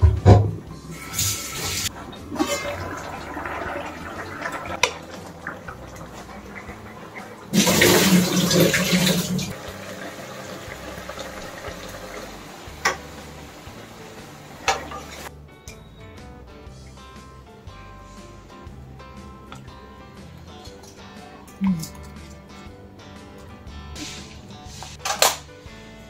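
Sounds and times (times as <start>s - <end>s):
kitchen handling: 0.0s - 9.5s, 24.0s - 25.5s
water splashing into steel sink: 0.2s - 13.4s, 14.4s - 15.3s.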